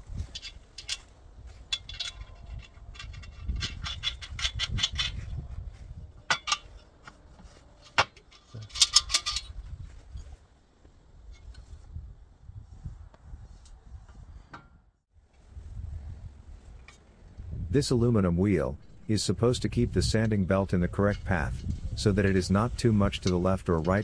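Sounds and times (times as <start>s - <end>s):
spanners and nut clinking: 0.2s - 5.2s, 7.9s - 9.6s.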